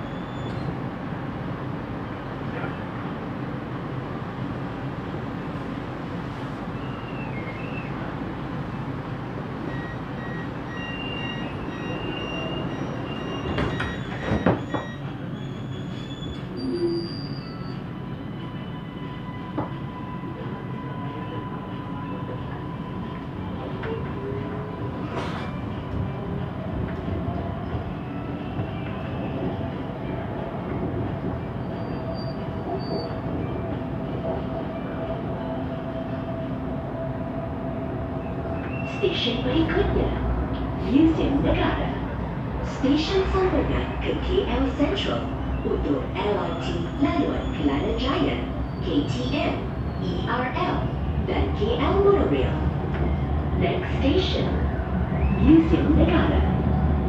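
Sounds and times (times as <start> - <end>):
train wheels rumbling on track: 0.0 - 57.0
train doors sliding shut: 10.2 - 17.7, 25.0 - 26.0.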